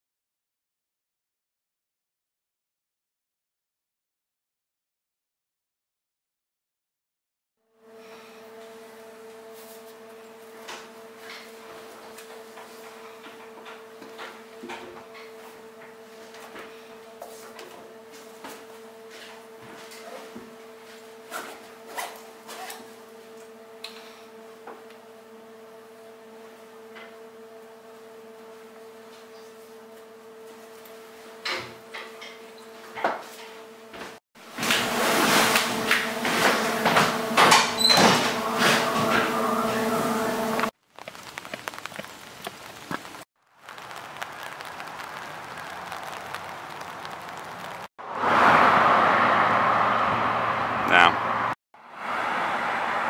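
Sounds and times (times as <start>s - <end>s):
footsteps on pavement: 40.9s - 43.2s.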